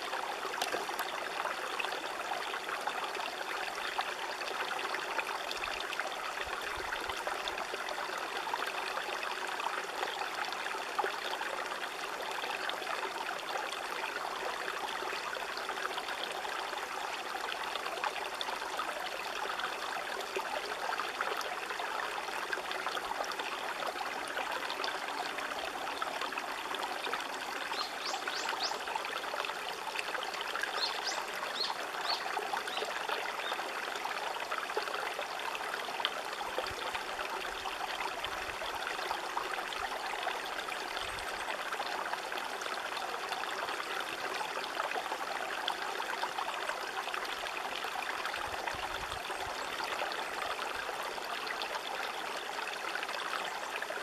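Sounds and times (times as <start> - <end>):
river water flowing: 0.0 - 54.0.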